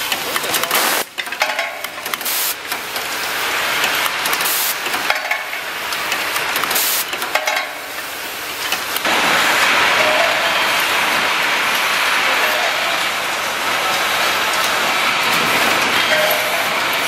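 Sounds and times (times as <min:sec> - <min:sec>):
assembly machine clatter: 0:00.0 - 0:09.1
many assembly machines running: 0:00.0 - 0:17.0.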